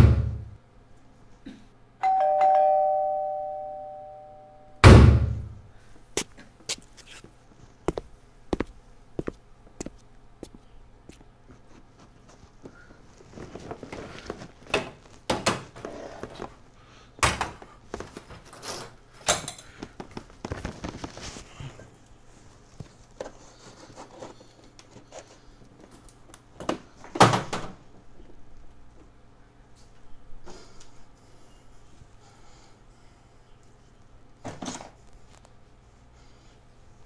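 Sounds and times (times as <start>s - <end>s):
knocks and thuds: 0.0s - 0.5s, 4.8s - 5.6s
rustling: 11.6s - 15.3s, 20.2s - 24.4s.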